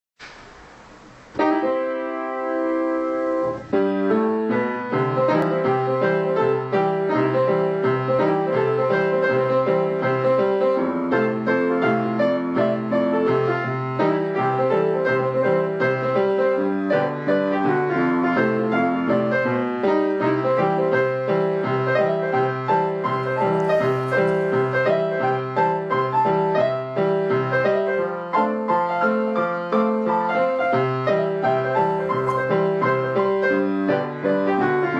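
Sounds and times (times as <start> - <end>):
faint hiss: 0.2 - 5.4
piano music: 1.3 - 34.9.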